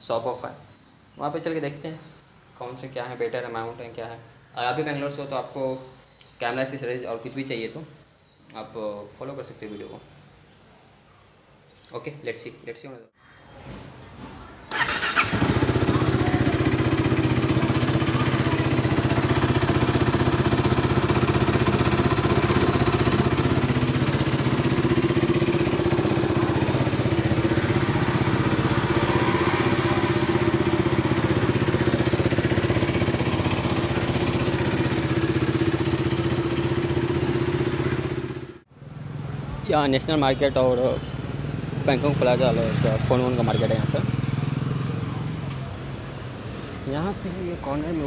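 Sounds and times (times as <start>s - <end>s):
electric starter cranking: 14.7s - 36.7s
motorcycle engine idling: 14.8s - 38.6s.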